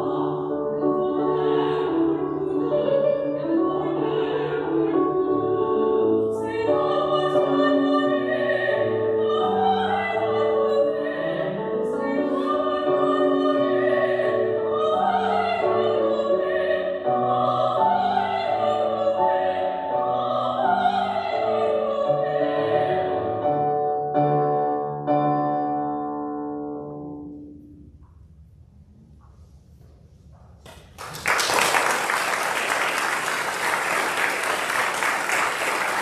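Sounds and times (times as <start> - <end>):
operatic singing: 0.0 - 23.5
electric keyboard piano: 22.2 - 27.8.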